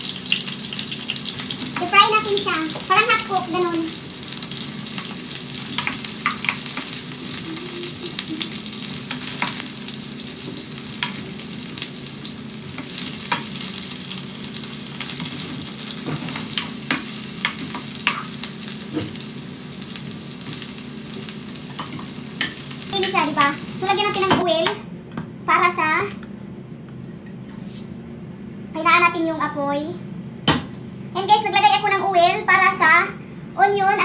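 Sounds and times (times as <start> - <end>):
eggplant sizzling in frying pan: 0.0 - 24.5.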